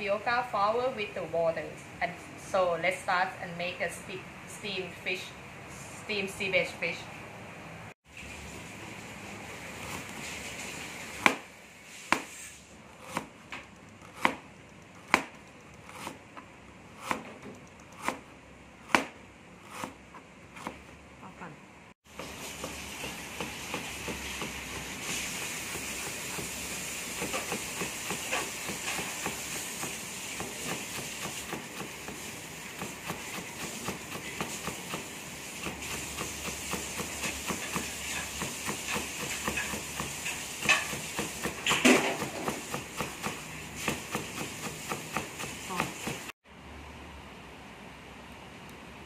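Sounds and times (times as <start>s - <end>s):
knife chopping on plastic board: 11.2s - 11.5s, 12.1s - 12.4s, 13.0s - 20.9s, 22.1s - 46.3s.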